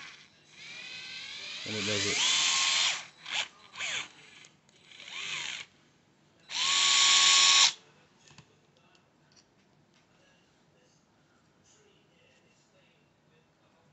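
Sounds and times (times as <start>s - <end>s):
cordless screwdriver whirring: 0.0s - 4.1s, 4.9s - 5.7s, 6.5s - 7.8s.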